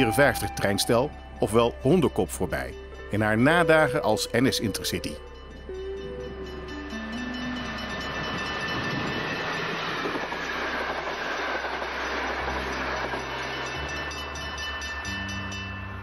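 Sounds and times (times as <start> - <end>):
train passing at speed: 6.5 - 16.0.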